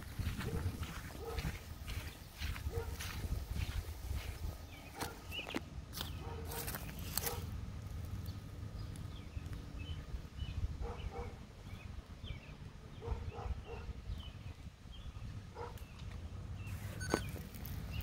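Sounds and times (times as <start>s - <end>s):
wind rumble on microphone: 0.0s - 5.6s, 8.0s - 18.0s
faint short chirps: 16.9s - 17.4s.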